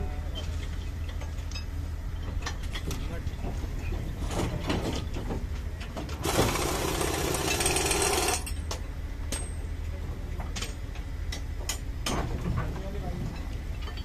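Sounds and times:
low machine hum: 0.0 - 14.0
rapid rattling hammering: 6.2 - 8.5.

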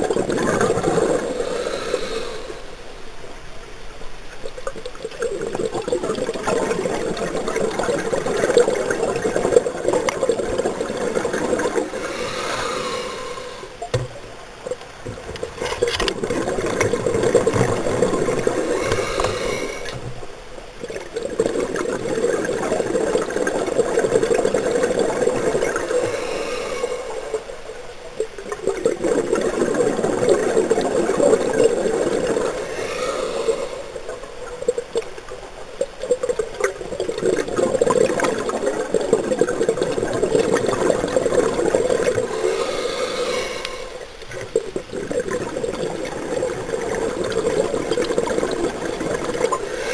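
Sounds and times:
exhaled bubbles rushing: 0.0 - 2.4, 4.4 - 14.0, 14.6 - 49.9
diver breathing through regulator: 1.0 - 2.8, 11.7 - 13.8, 18.1 - 20.1, 25.5 - 27.6, 32.3 - 34.3, 41.4 - 44.2, 49.5 - 49.9.

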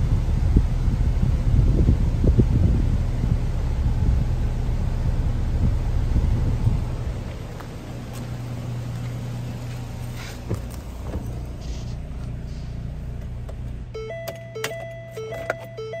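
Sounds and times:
car engine idling: 0.0 - 16.0
electronic warning chime: 13.9 - 16.0.

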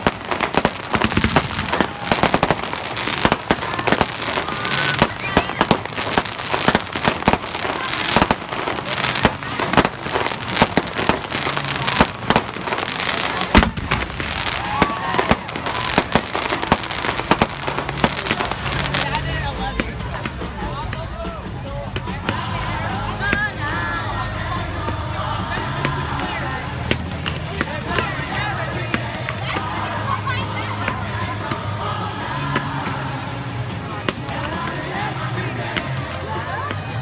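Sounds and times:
fireworks crackling pops and bangs: 0.0 - 21.0, 26.8 - 29.8.

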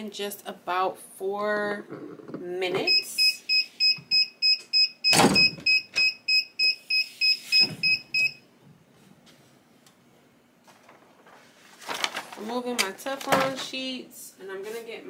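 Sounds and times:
timer alarm beeping rapidly: 2.9 - 8.4.

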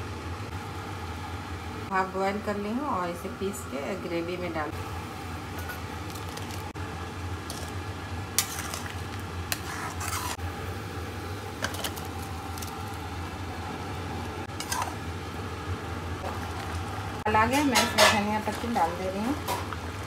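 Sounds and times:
steady low hum: 0.0 - 20.0
gravy sizzling: 4.8 - 20.0
spatula and bowl clinking on pan: 14.6 - 15.0, 17.6 - 18.4.

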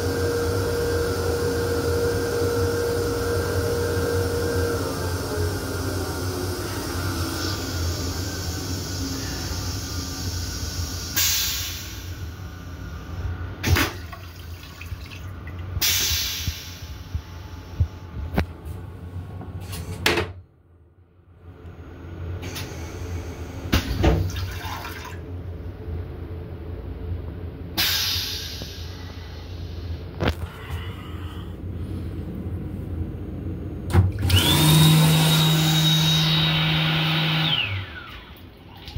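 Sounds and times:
toilet flushing water hiss: 0.0 - 17.9, 22.3 - 25.3, 27.8 - 30.1.

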